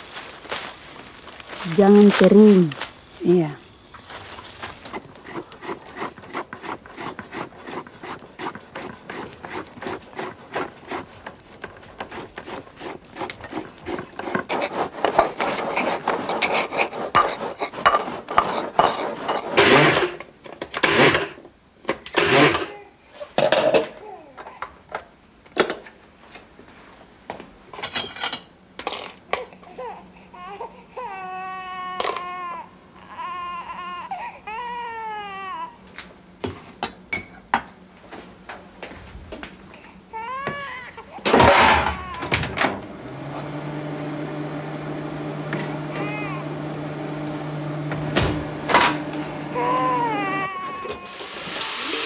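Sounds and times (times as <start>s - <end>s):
shallots scraped in a bowl: 4.1s - 20.0s
baby crying: 29.7s - 35.8s, 40.1s - 42.4s, 45.8s - 46.5s, 49.4s - 51.3s.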